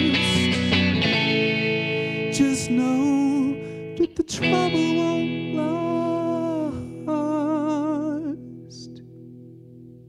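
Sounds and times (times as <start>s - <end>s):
wordless vocal line: 0.0s - 1.0s
electric guitar chords: 0.0s - 10.0s.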